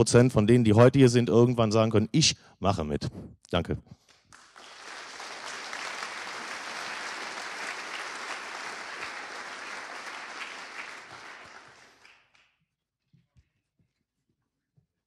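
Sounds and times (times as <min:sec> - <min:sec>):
large audience applauding: 0:04.1 - 0:12.4.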